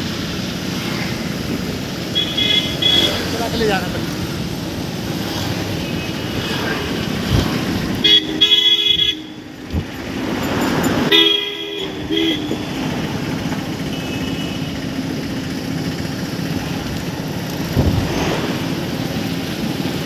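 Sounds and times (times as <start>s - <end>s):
traffic engine and road rumble: 0.0s - 20.0s
vehicle horns honking: 2.2s - 3.4s, 8.0s - 9.6s, 11.0s - 13.2s, 13.8s - 14.9s.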